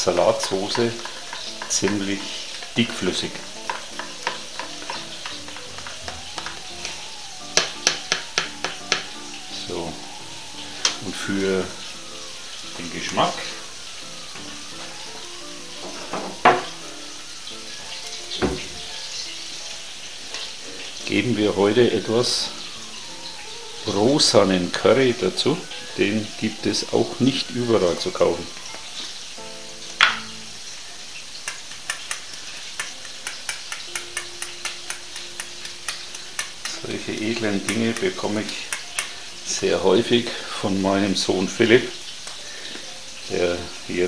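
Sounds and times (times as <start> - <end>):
potatoes sizzling in a pan: 0.0 - 44.0.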